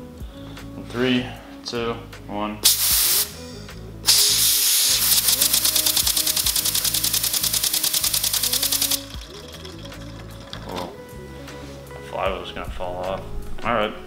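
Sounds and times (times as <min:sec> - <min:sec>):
air hissing: 0:02.6 - 0:03.5, 0:04.1 - 0:09.1.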